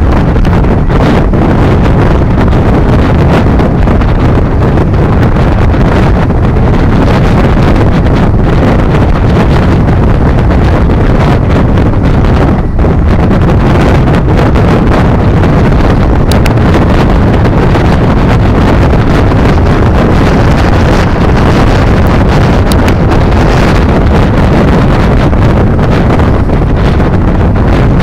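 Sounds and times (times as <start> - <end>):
ferry engine running: 0.0 - 28.0
wind buffeting microphone: 0.0 - 28.0.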